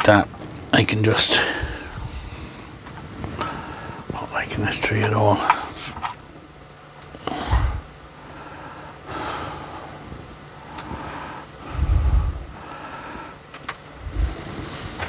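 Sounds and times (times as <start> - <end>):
person breathing heavily: 1.3 - 4.1, 7.2 - 15.0.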